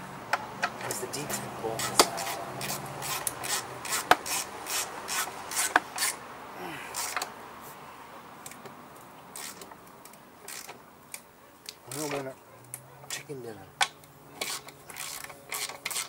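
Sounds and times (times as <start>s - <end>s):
socket ratchet rasping: 6.9s - 7.3s, 9.4s - 9.8s, 14.4s - 16.0s.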